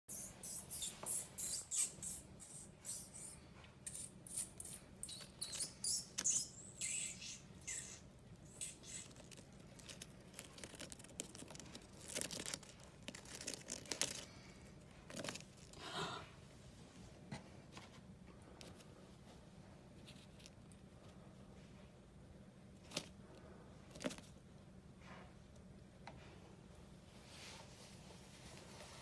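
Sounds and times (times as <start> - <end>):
mouse claws scratching leaves: 8.5 - 15.8.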